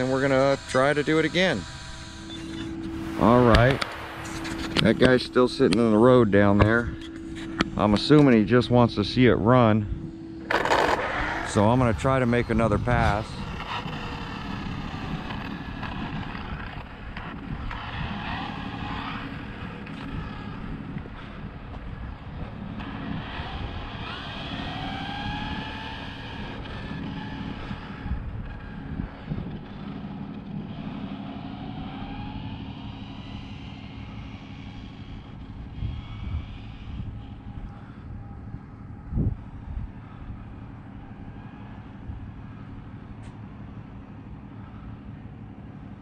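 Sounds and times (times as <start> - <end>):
faint rising whine: 0.0 - 46.0
road traffic drone: 0.0 - 46.0
wind rumbling on microphone: 1.4 - 30.9, 34.8 - 43.2
toy car motors whirring: 10.5 - 20.6, 22.8 - 28.7.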